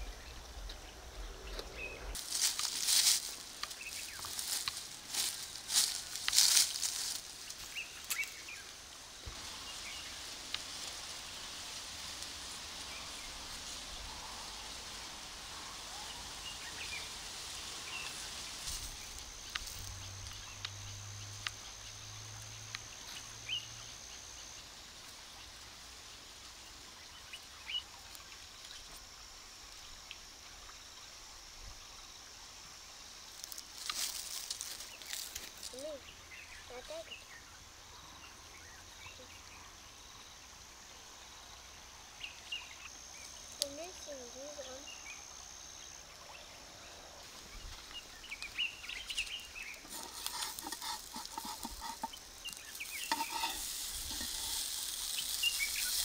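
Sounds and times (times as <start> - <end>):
steady high hiss: 0.0 - 56.0.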